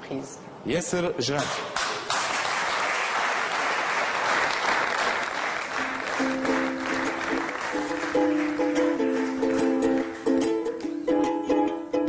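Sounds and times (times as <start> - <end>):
audience applauding: 2.0 - 10.8
guitar plucked notes: 5.9 - 12.0.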